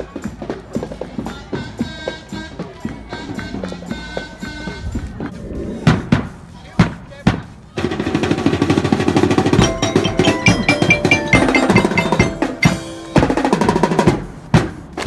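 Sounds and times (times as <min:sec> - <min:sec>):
snare drum rolls: 0:04.9 - 0:15.0
marching band playing: 0:07.9 - 0:15.0
chiming bell notes: 0:09.6 - 0:14.1.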